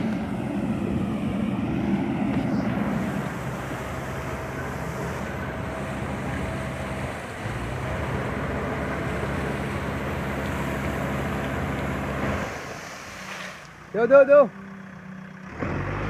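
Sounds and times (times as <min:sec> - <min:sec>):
diesel engine running: 0:00.0 - 0:16.0
water splashing: 0:02.7 - 0:14.0.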